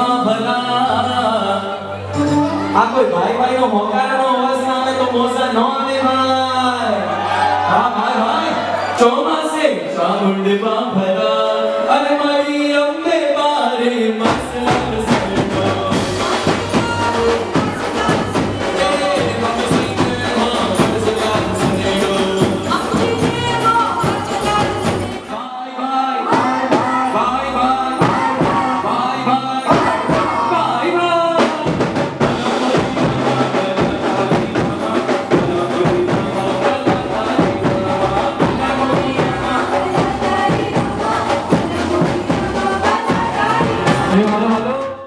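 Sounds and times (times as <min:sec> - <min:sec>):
live band dance music: 0:00.0 - 0:10.5, 0:11.1 - 0:45.0
vocals: 0:00.0 - 0:45.0
drum and percussion beat: 0:14.2 - 0:25.4, 0:26.3 - 0:45.0.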